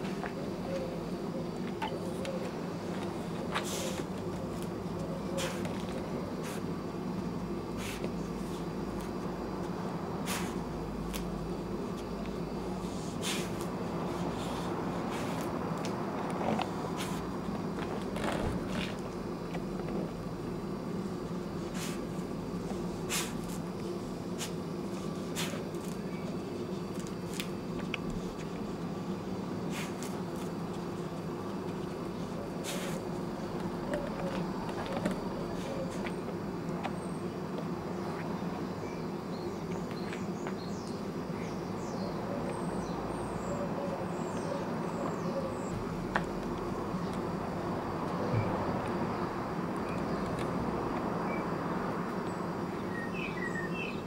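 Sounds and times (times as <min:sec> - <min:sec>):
low outdoor garden hum: 0:00.0 - 0:54.0
small birds chirping: 0:31.8 - 0:47.3, 0:51.2 - 0:54.0.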